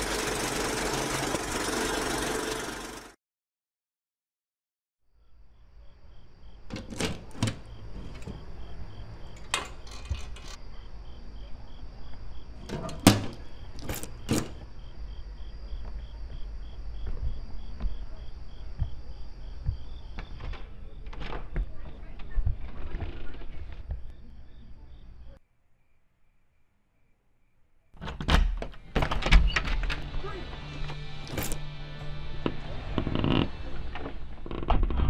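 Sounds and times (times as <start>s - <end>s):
metal mailbox door clacking: 6.7s - 8.6s, 9.3s - 10.6s, 12.6s - 14.6s.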